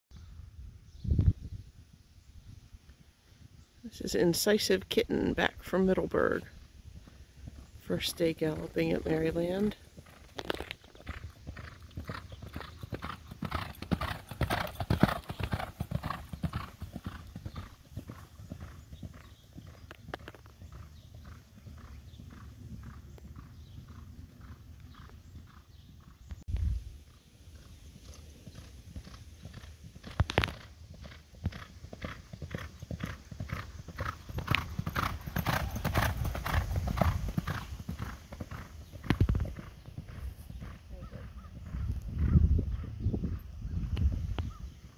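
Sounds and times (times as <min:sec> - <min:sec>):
horse hoofbeats galloping on dirt: 0:06.2 - 0:26.4, 0:27.0 - 0:44.5.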